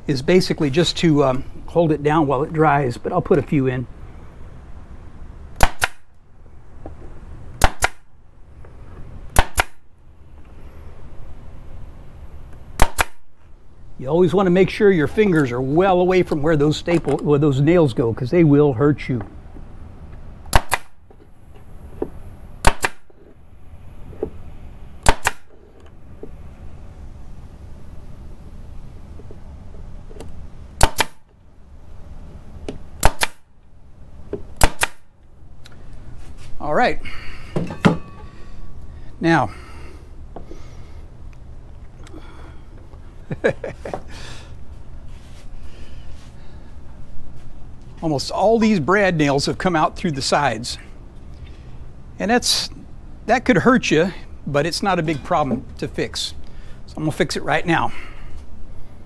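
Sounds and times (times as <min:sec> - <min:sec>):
nail gun firing: 0:05.6 - 0:06.1, 0:07.6 - 0:08.1, 0:09.4 - 0:09.8, 0:12.8 - 0:13.3, 0:20.5 - 0:21.0, 0:22.6 - 0:23.1, 0:25.0 - 0:25.5, 0:30.8 - 0:31.2, 0:33.0 - 0:33.4, 0:34.6 - 0:35.1.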